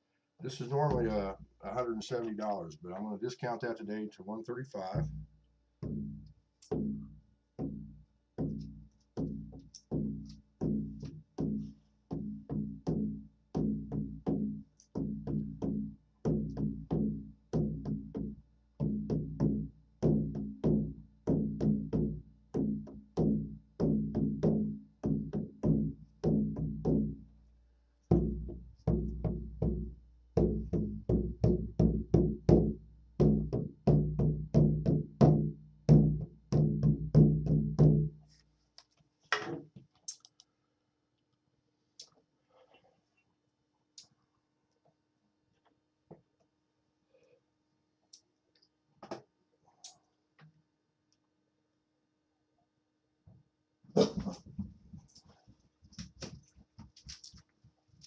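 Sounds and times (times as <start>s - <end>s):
frame drum beating: 0.8s - 1.4s, 5.8s - 7.0s, 28.1s - 38.1s.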